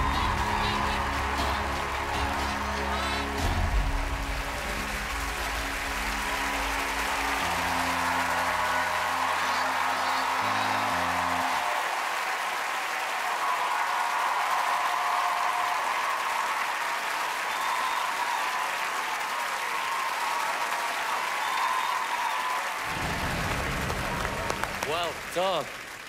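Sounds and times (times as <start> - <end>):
music ending: 0.0 - 11.6
applause: 0.0 - 26.0.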